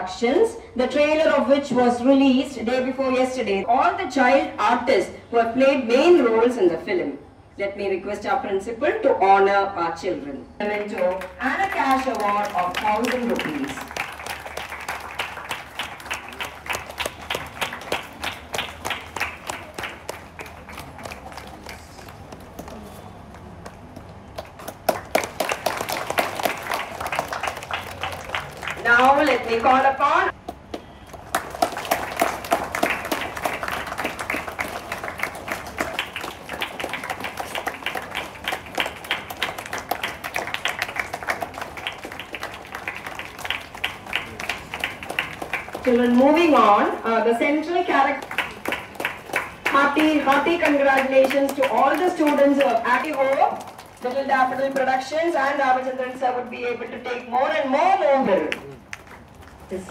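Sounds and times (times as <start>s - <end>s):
group applauding: 10.7s - 55.7s, 58.3s - 59.9s
loud steady claps nearby: 10.7s - 55.8s, 58.3s - 59.9s.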